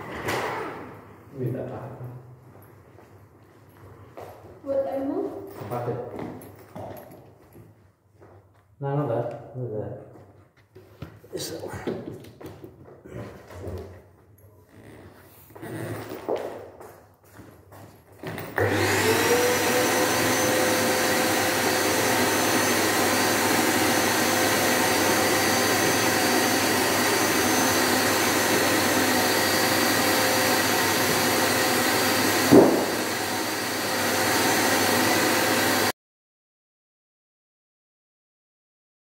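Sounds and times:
vacuum cleaner motor whine: 0:00.0 - 0:01.0, 0:18.2 - 0:35.9
hose sucking over carpet: 0:18.6 - 0:35.9
sharp knock: 0:32.5 - 0:32.9.

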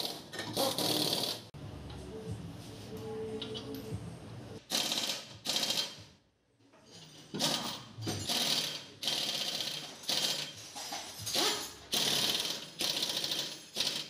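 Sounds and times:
pneumatic impact wrench bursts: 0:00.0 - 0:01.5, 0:04.7 - 0:06.0, 0:07.3 - 0:14.0.

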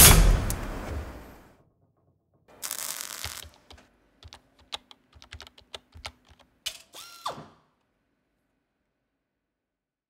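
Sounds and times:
rapid sharp clicks: 0:02.6 - 0:06.6.

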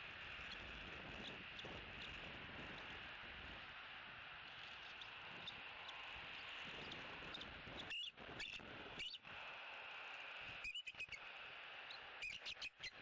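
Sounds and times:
eagle chittering calls: 0:04.9 - 0:09.3, 0:10.6 - 0:13.0.

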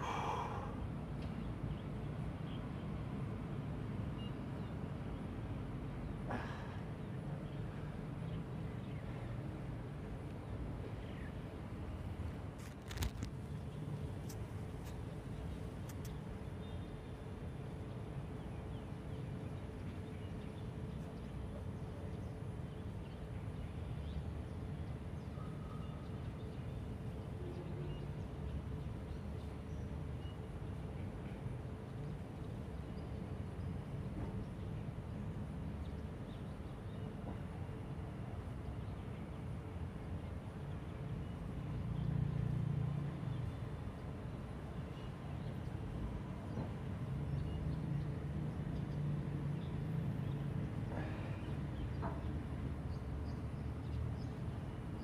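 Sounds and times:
road traffic rumble: 0:00.0 - 0:25.3, 0:26.0 - 0:55.0.

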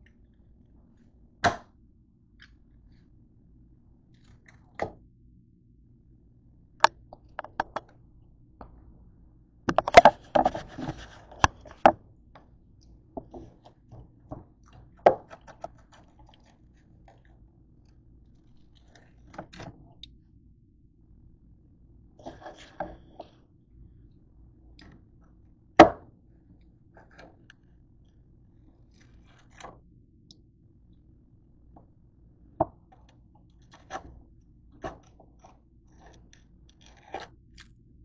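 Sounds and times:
scraping and crunching: 0:09.7 - 0:11.9.

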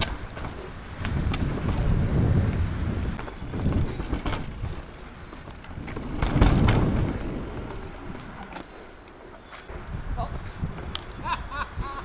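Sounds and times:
bike frame rattling: 0:00.0 - 0:09.6
bike tyres rolling over dirt: 0:00.0 - 0:11.4.

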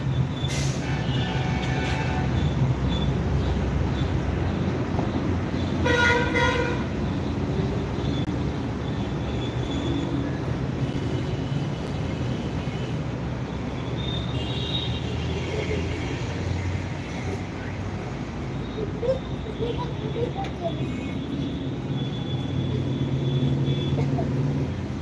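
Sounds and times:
background traffic rumble: 0:00.0 - 0:25.0
vehicle horn toot: 0:00.6 - 0:02.6, 0:05.8 - 0:06.9.

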